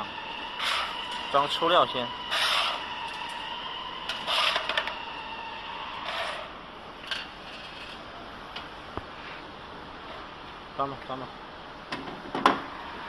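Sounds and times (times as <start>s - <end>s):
metal scraping rubs: 4.1s - 4.8s, 6.0s - 6.5s.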